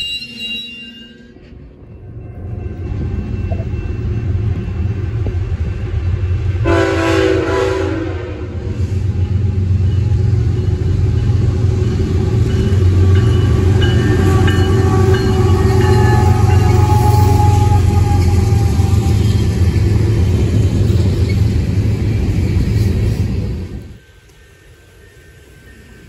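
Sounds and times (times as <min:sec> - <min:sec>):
diesel locomotive rumble: 0:01.2 - 0:26.0
train air horn: 0:06.6 - 0:19.6.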